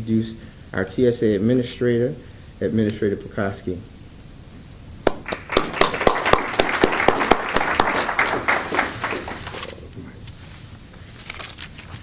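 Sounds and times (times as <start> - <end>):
audience applauding: 5.1 - 9.9.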